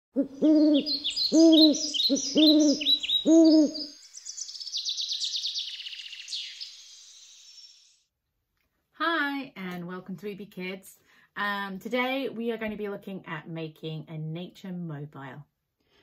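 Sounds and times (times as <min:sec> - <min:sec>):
owl hooting: 0:00.2 - 0:08.0
high songbird chirps: 0:00.2 - 0:08.1
fast high birdsong trill: 0:00.4 - 0:08.1.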